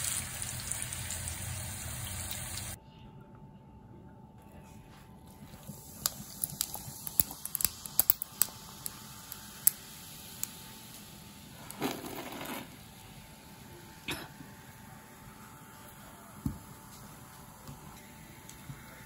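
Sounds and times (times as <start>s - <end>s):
ice clicking and cracking: 6.0s - 9.0s.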